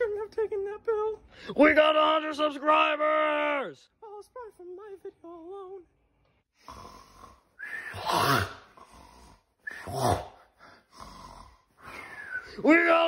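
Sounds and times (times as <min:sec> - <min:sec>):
person snoring: 0:06.6 - 0:12.2.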